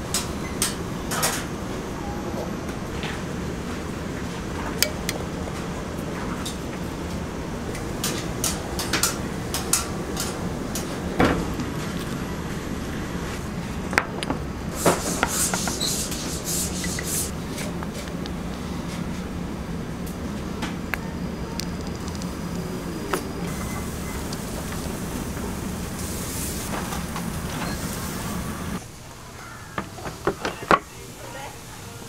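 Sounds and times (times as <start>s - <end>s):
low kitchen hum: 0.0s - 32.0s
metal tongs clicking and knocking: 4.8s - 5.2s.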